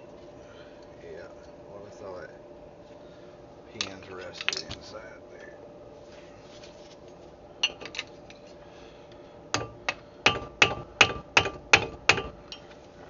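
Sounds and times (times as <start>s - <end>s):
hammer striking metal: 9.5s - 12.4s.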